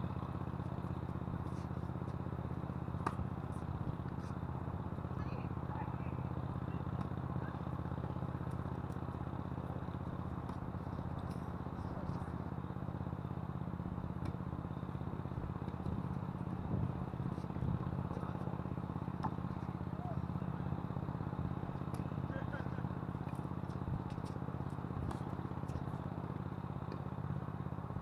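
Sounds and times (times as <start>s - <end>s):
tennis balls struck by rackets: 0.5s - 5.2s, 6.3s - 12.4s, 14.1s - 14.5s, 15.5s - 26.1s.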